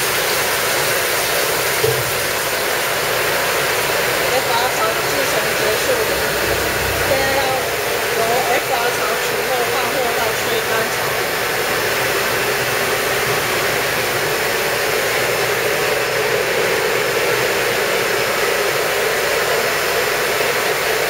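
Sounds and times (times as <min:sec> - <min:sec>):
machine air and water rushing: 0:00.0 - 0:21.0.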